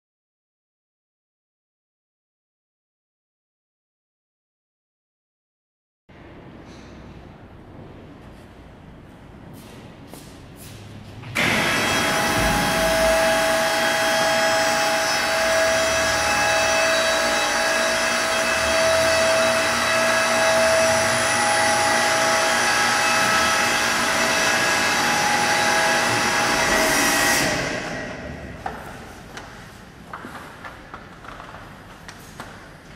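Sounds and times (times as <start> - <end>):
pump motor whining: 11.4 - 28.0.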